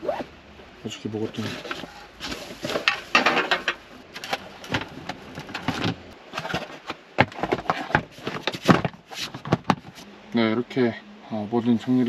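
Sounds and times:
dishes and camping gear clattering: 1.4 - 10.0.

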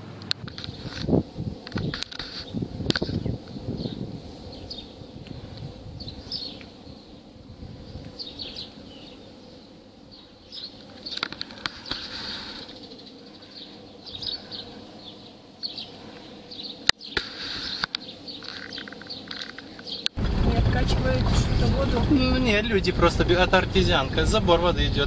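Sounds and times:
small birds chirping: 1.7 - 20.2.

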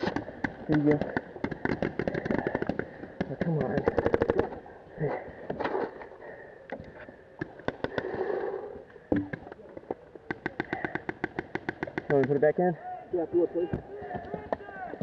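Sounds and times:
paintball markers firing: 0.0 - 4.6, 7.4 - 8.2, 9.1 - 12.4.

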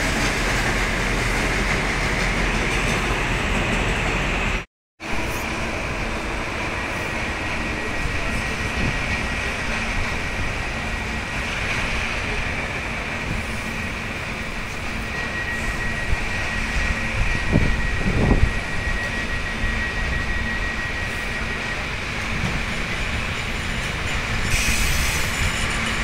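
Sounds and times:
train rumble: 0.0 - 26.0
high-pitched whine: 12.2 - 23.9.

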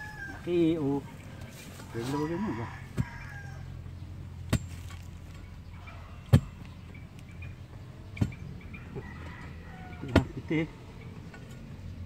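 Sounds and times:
digging bar striking hard soil: 4.4 - 5.2.

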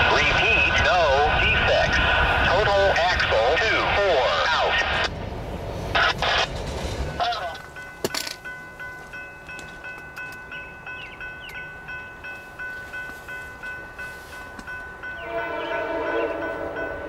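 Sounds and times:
crossing warning bell ringing: 7.1 - 17.0
locomotive horn: 15.2 - 17.0.

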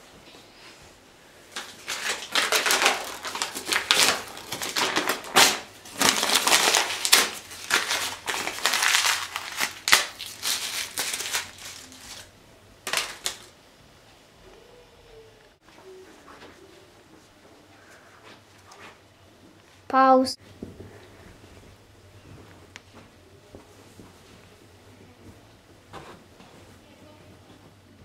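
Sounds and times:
paper crumpling: 1.5 - 12.3, 12.9 - 13.5.

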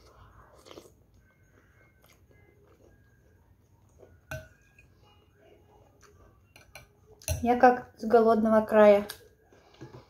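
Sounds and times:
mouth sounds of eating: 0.0 - 1.0.

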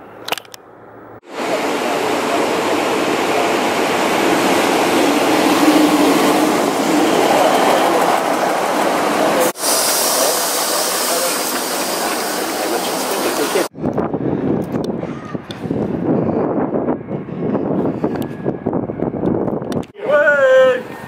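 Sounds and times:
train passing: 0.7 - 13.7
hiss: 9.5 - 13.7.

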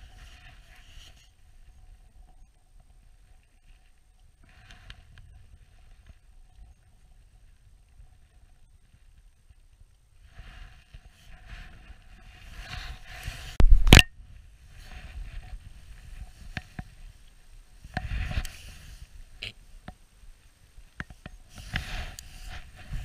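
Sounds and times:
clothing rustling and scraping: 21.5 - 23.0.

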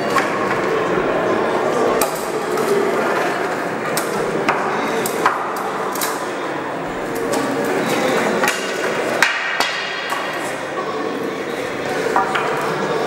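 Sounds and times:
steady background noise: 0.0 - 13.0.

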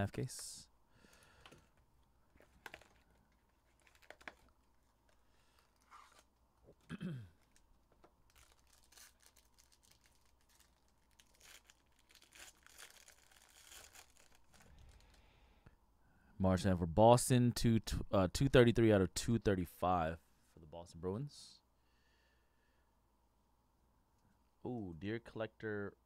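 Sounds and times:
foil packs crinkling: 1.0 - 15.2
packaging torn open: 2.4 - 6.4, 7.4 - 15.2.

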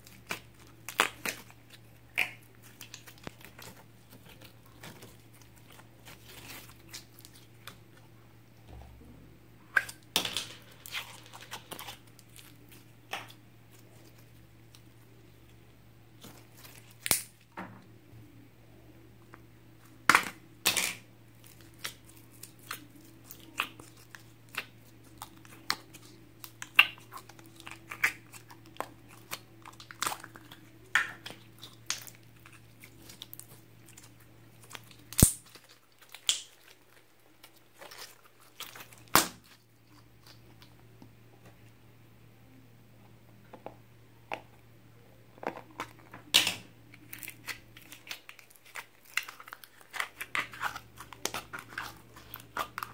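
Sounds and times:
slime wet pops and crackles: 0.0 - 7.8, 11.4 - 14.9, 16.2 - 17.5, 20.0 - 40.8, 45.8 - 52.9.

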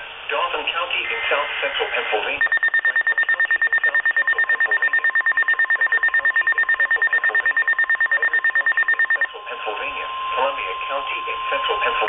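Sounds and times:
rapid pulsing electronic beep: 2.4 - 12.0
steady alarm tone: 2.4 - 12.0.

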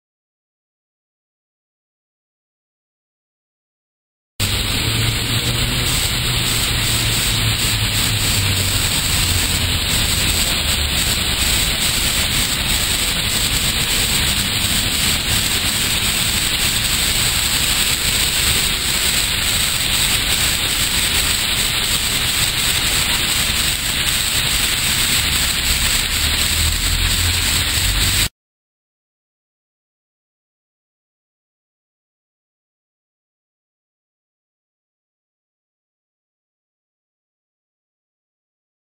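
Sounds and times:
water splashing down a wall: 4.4 - 28.3.

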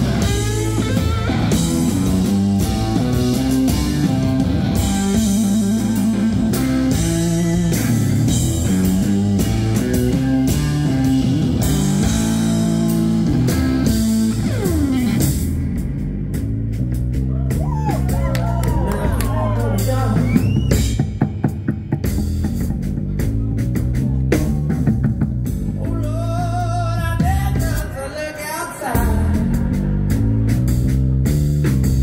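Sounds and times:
electric guitar: 0.0 - 22.2
drum kit: 0.0 - 32.0.

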